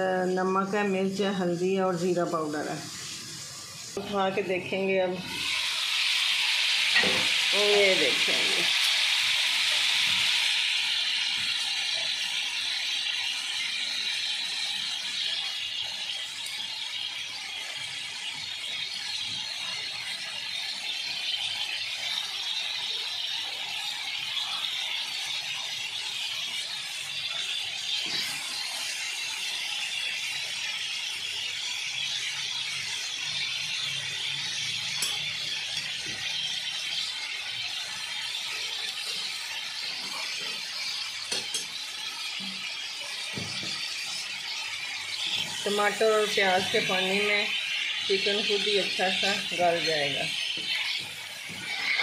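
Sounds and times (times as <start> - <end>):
food sizzling in a wok: 0.0 - 52.0
utensils clicking against pan: 26.6 - 29.0, 31.9 - 52.0.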